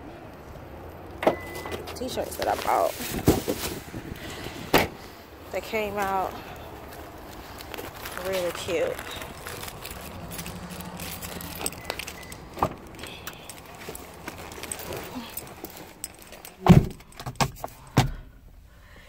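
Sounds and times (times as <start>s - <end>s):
car door opening and shutting: 1.1s - 2.1s, 2.7s - 5.1s, 9.5s - 18.6s
car keys jangling: 6.9s - 18.0s.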